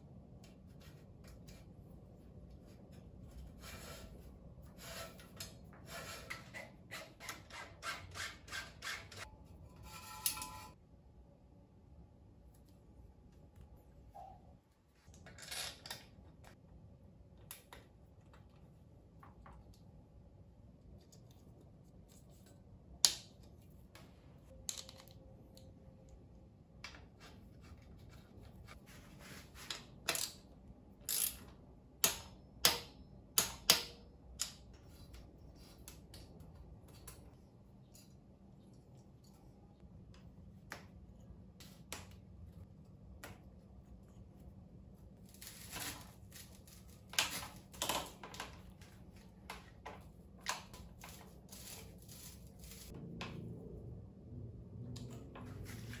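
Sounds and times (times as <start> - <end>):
tools tapping and scraping on bicycle frame: 2.5 - 10.8, 26.8 - 40.9, 45.4 - 53.4.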